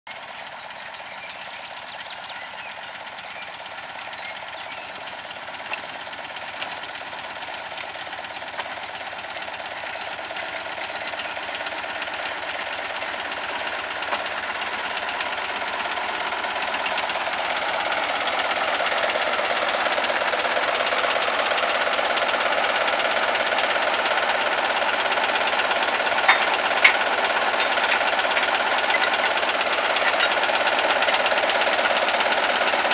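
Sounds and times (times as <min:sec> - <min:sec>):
diesel locomotive engine running: 0:00.1 - 0:32.9
sharp knocks: 0:26.2 - 0:29.3.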